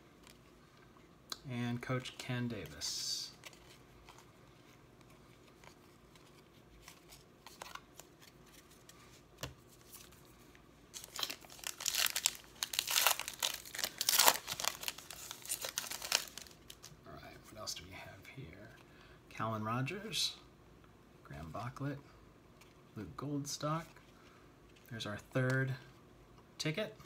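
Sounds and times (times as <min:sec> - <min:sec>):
foil wrapper crinkling and tearing: 0:10.9 - 0:16.9.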